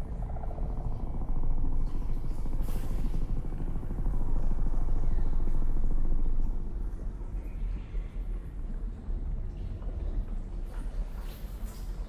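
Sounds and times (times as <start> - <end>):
low rumbling drone: 0.0 - 9.6.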